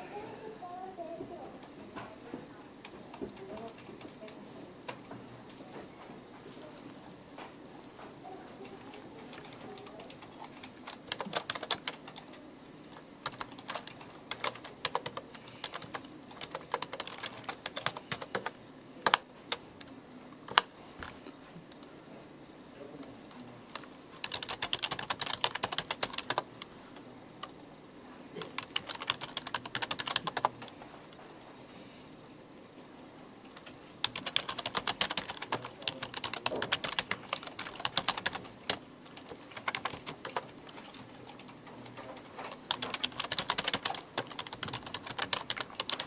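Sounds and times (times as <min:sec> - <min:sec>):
keyboard typing: 0:08.6 - 0:19.9, 0:20.5 - 0:21.2, 0:23.4 - 0:26.7, 0:27.4 - 0:27.7, 0:28.4 - 0:31.5, 0:33.5 - 0:46.0.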